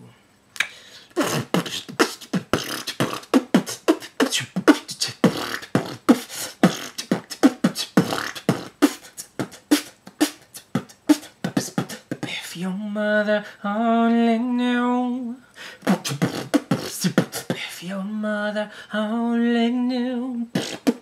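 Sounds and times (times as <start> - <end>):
man beatboxing: 0.6 - 12.7, 15.8 - 18.0, 20.5 - 21.0.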